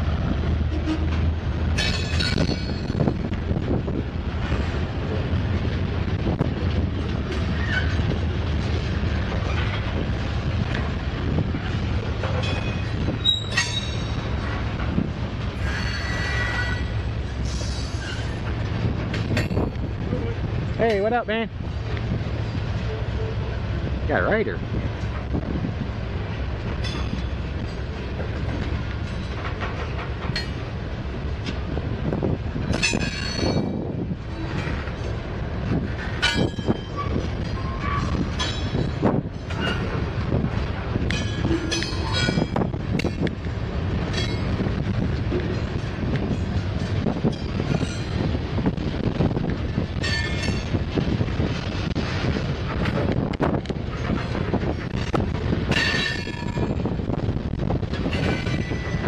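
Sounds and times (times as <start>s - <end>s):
freight train rumbling past: 0.0s - 59.0s
train wheels squealing: 7.6s - 8.0s, 12.5s - 14.2s, 15.6s - 18.4s.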